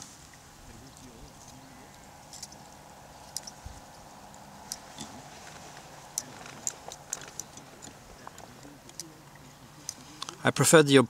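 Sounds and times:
light ticks and clicks: 0:03.3 - 0:10.4.

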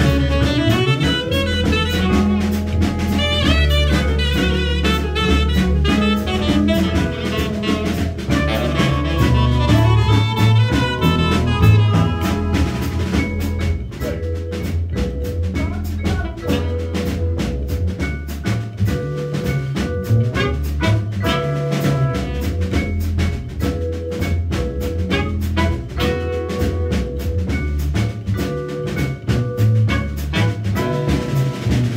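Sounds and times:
trumpet: 0:00.0 - 0:13.6, 0:20.2 - 0:22.8, 0:25.0 - 0:27.3, 0:29.8 - 0:31.9
saxophone: 0:00.0 - 0:14.2, 0:15.6 - 0:17.1, 0:20.3 - 0:22.8, 0:25.0 - 0:27.3, 0:29.8 - 0:31.9
drum kit: 0:00.0 - 0:31.9
mallet keyboard: 0:00.0 - 0:31.9
upright bass: 0:00.0 - 0:31.9.

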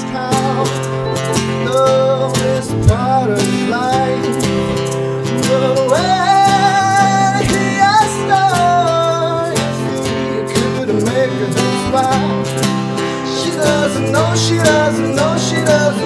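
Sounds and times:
strummed acoustic guitar: 0:00.0 - 0:16.0
man singing held notes: 0:05.4 - 0:16.0.

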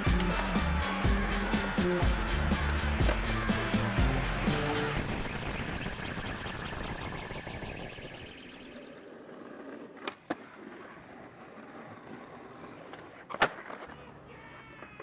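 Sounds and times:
music: 0:00.0 - 0:05.3
skateboard wheels rolling on concrete: 0:00.0 - 0:05.5, 0:08.3 - 0:15.0
skateboard clacks: 0:00.1 - 0:00.8, 0:09.2 - 0:15.0.

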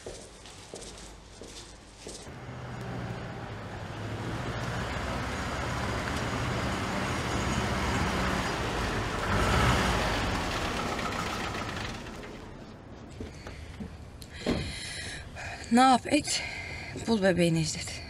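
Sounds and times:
tyres on cobblestones: 0:00.0 - 0:18.0
car engine low hum: 0:02.3 - 0:13.0.

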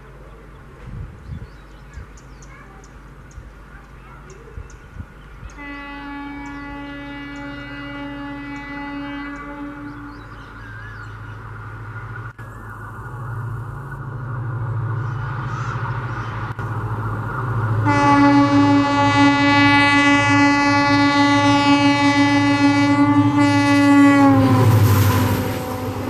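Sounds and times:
diesel locomotive engine: 0:00.0 - 0:26.0
locomotive horn blast: 0:05.6 - 0:10.3, 0:17.8 - 0:26.0
train coaches clattering by: 0:06.4 - 0:26.0.

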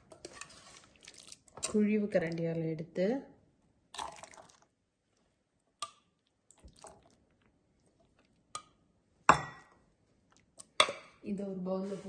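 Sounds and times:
curry squelching plops: 0:00.7 - 0:01.8, 0:03.9 - 0:04.7, 0:05.8 - 0:08.7.

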